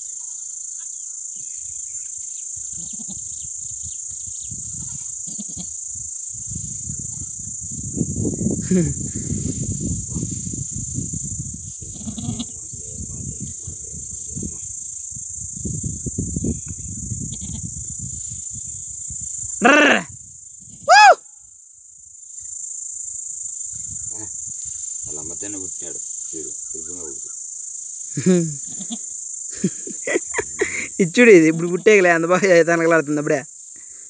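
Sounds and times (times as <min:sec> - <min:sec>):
crickets chirring: 0:00.0 - 0:34.0
goat bleating loudly: 0:11.9 - 0:12.6, 0:28.6 - 0:29.0, 0:31.4 - 0:31.9.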